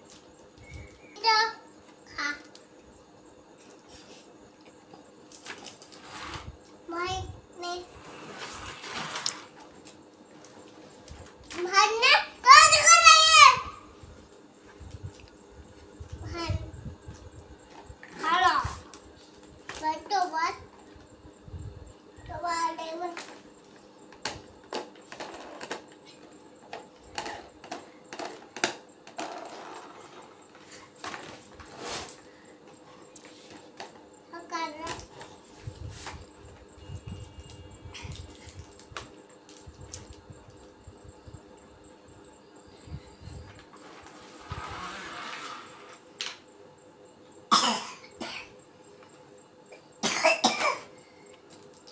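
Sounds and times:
child coughing: 0:47.5 - 0:48.5, 0:50.0 - 0:50.9.

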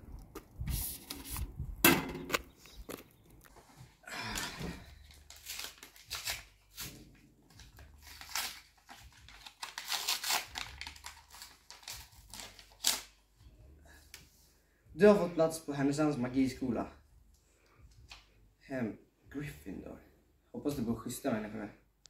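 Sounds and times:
paper scrape: 0:00.7 - 0:01.5
paper envelope tearing: 0:05.0 - 0:13.2.

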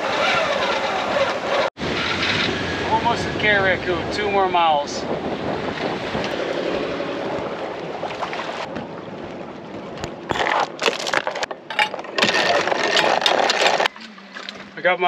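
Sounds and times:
wind and water rushing: 0:00.0 - 0:15.0
sharp knocks and rattles: 0:10.3 - 0:14.0.

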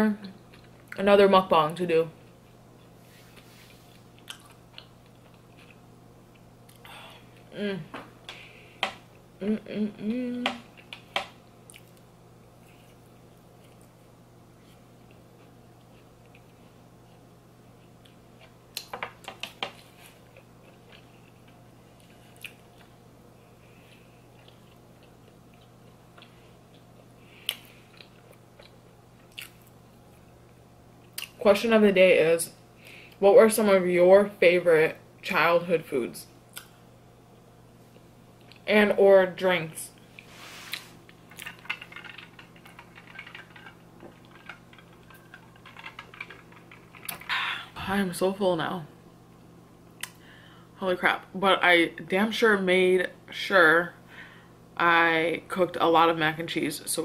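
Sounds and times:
low steady hum: 0:00.0 - 0:57.0
close-up chewing and mouth clicks: 0:03.9 - 0:06.9, 0:11.7 - 0:12.1, 0:23.9 - 0:29.8, 0:40.7 - 0:47.3.

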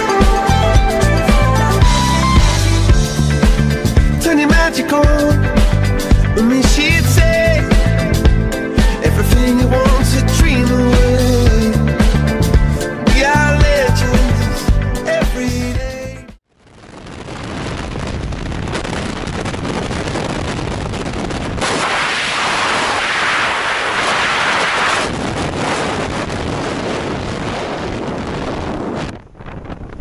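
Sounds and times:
freefall wind rushing over microphone: 0:16.5 - 0:30.0.

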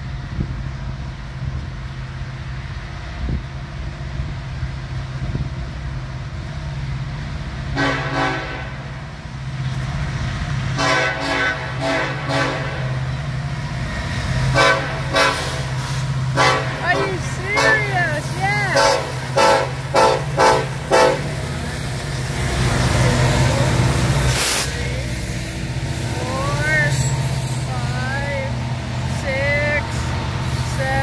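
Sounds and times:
train rumbling: 0:00.0 - 0:31.0
locomotive air horn blasts: 0:07.8 - 0:08.8, 0:10.8 - 0:13.0, 0:14.5 - 0:15.7, 0:16.4 - 0:18.1, 0:18.7 - 0:21.4.

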